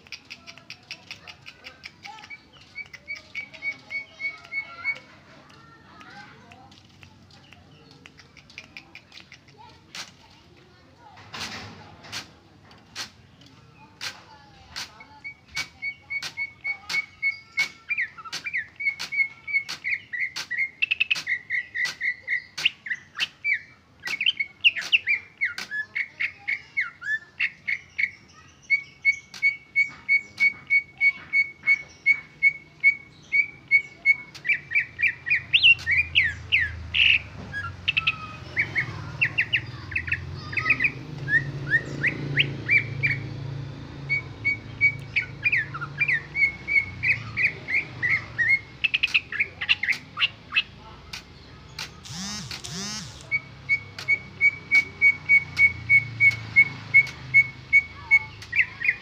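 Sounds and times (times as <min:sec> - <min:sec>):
bird whistling chirps: 0:52.2 - 0:59.0.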